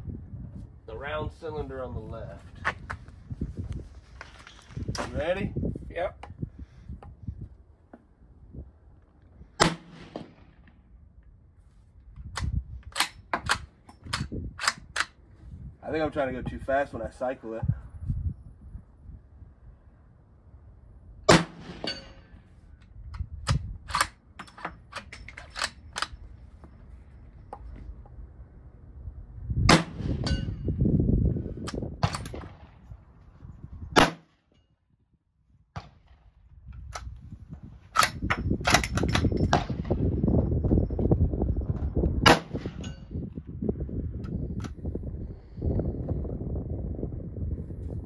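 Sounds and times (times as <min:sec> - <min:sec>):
rifle shots: 0:09.6 - 0:10.7, 0:21.3 - 0:22.2, 0:29.7 - 0:30.4, 0:34.0 - 0:34.4, 0:42.2 - 0:42.9.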